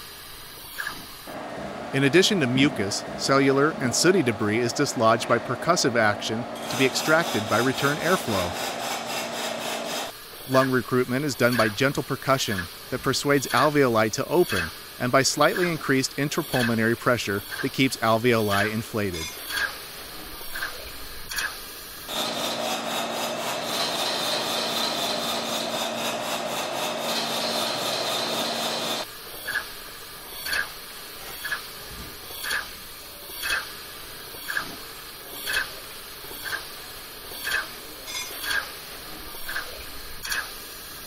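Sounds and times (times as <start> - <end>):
rasping pulsing hiss: 0.0 - 41.0
steady hum: 1.2 - 24.1.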